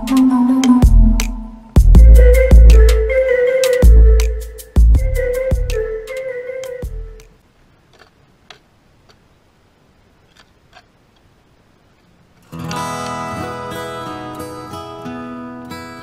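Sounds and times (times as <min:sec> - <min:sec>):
strummed acoustic guitar music: 0:12.5 - 0:16.0.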